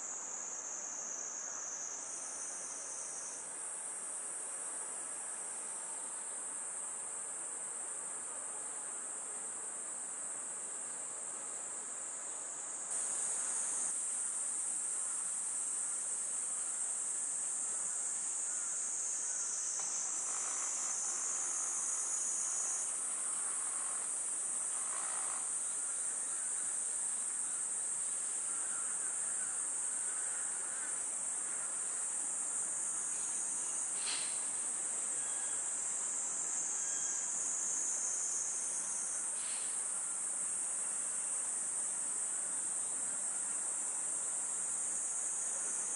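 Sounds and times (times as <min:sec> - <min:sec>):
cicadas droning: 0:00.0 - 0:45.9.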